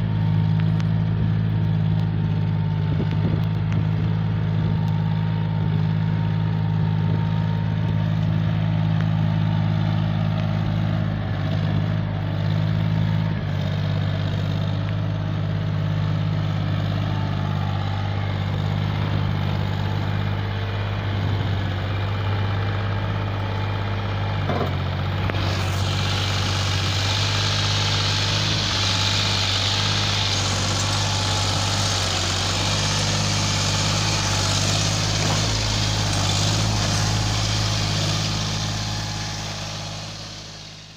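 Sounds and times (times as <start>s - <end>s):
tractor diesel engine running: 0.0s - 40.9s
hiss: 25.4s - 40.9s.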